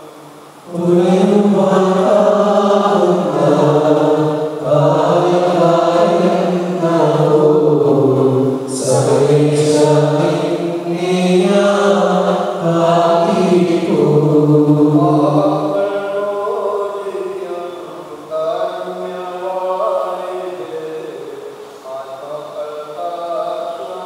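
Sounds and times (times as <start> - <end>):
man chanting a sung prayer: 0.0 - 24.0.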